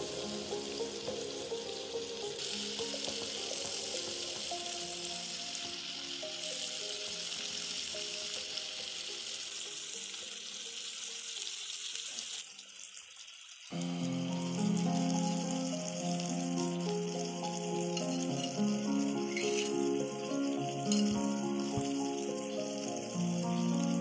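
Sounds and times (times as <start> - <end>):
vegetables sizzling in hot oil: 0.0 - 24.0.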